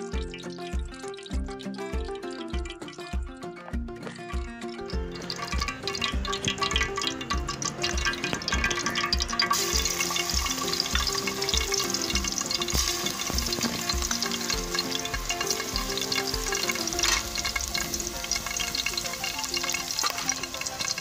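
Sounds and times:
background music with low beat: 0.0 - 21.0
garlic sizzling in oil: 4.9 - 21.0.

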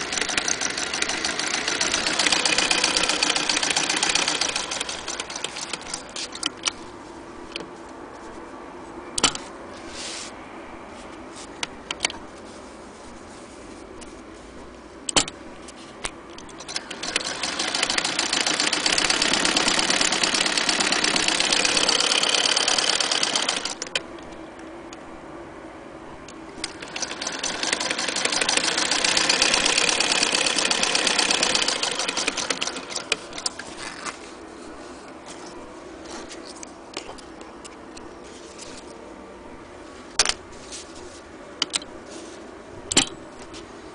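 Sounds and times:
sewing machine stitching: 0.0 - 6.5, 16.5 - 24.0, 26.6 - 33.6.

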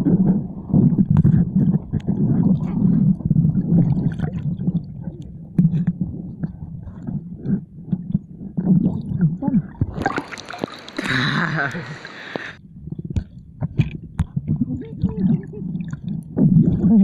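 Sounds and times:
muffled underwater gurgling: 0.0 - 17.0
hissing rush of water: 10.1 - 12.6.

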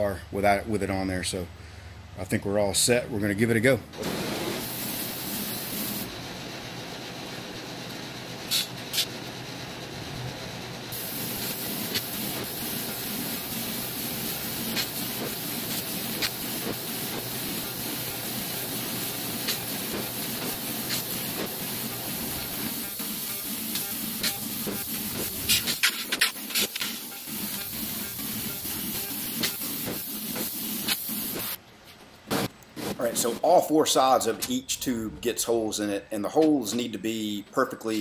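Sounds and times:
hiss of assist gas: 4.1 - 6.1, 10.9 - 31.6
laser pops and crackles: 22.7 - 31.6.

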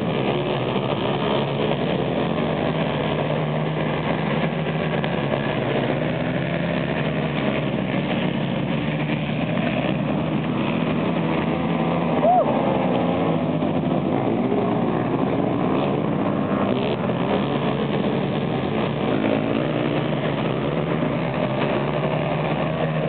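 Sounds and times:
quad engines racing: 0.0 - 23.0.

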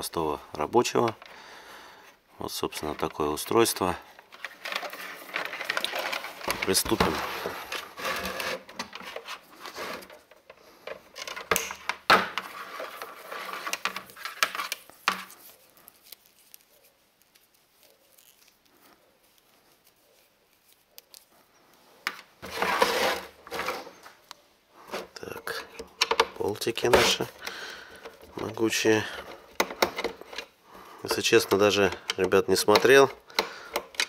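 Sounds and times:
cord rustling: 0.6 - 34.0
scraping rustle: 2.8 - 11.0, 12.4 - 21.4, 22.4 - 24.2.

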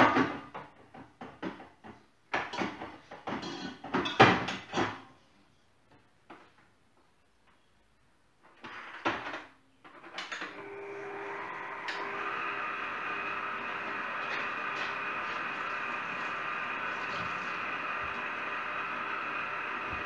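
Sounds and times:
electric stand mixer whirring: 10.5 - 20.0.

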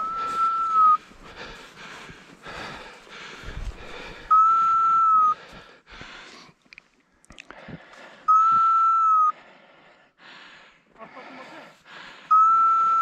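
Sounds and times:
steady whistle tone: 0.0 - 1.1, 4.2 - 5.4, 8.3 - 9.4, 12.3 - 13.0.

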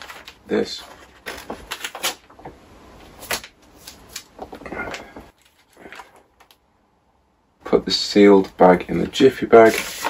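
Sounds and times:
plastic bag and paper rustling: 0.0 - 2.6, 8.9 - 10.0.

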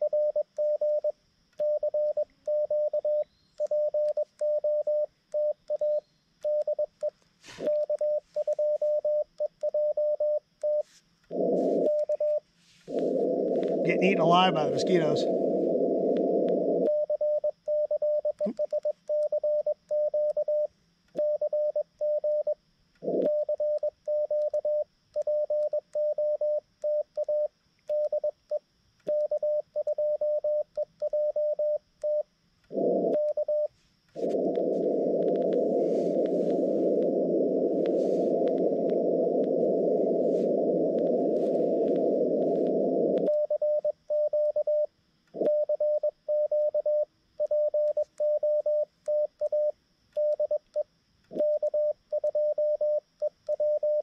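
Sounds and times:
morse code beeps: 0.0 - 22.6, 29.1 - 50.6, 51.4 - 54.0
radio receiver hiss: 7.3 - 8.7, 10.9 - 17.0, 32.7 - 43.4.

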